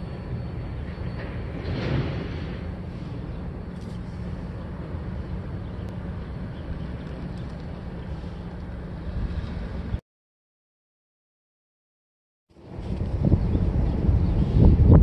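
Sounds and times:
freight train rumbling: 0:00.0 - 0:10.0, 0:12.6 - 0:15.0
wind buffeting microphone: 0:12.6 - 0:15.0.

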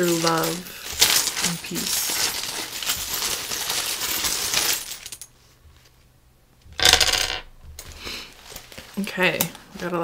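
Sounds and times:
small charms rattling: 0:00.0 - 0:05.2
charms clattering: 0:00.0 - 0:05.3, 0:06.8 - 0:07.4.

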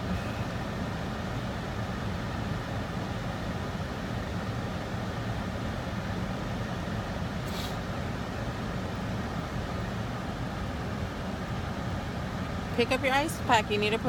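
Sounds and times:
brief hiss: 0:07.4 - 0:07.9.

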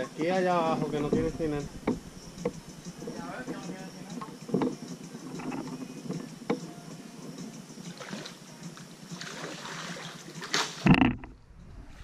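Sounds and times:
paddle splashing water: 0:09.2 - 0:11.2.

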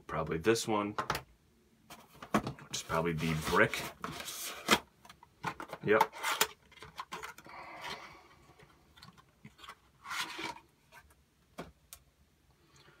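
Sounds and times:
cardboard box rustling: 0:01.9 - 0:04.8.

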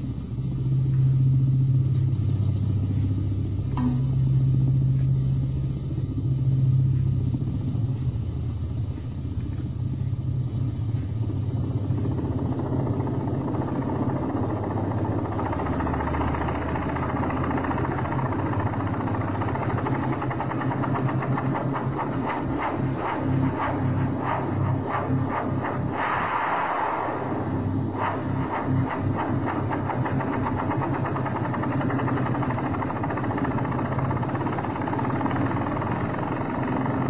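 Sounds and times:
helicopter engine and rotor drone: 0:00.0 - 0:37.0
rushing noise: 0:12.0 - 0:37.0.

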